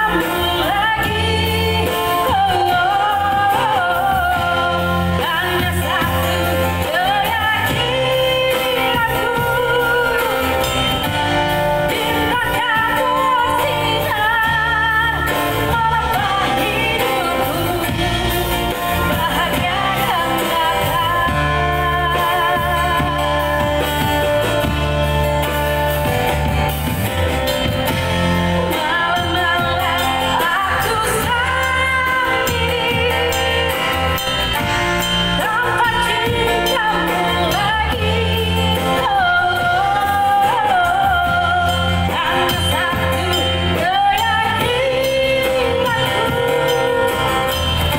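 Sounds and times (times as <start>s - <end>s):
woman singing through microphone: 0.0s - 26.1s, 27.8s - 47.9s
acoustic guitar: 0.0s - 47.9s
live band accompaniment: 0.0s - 47.9s.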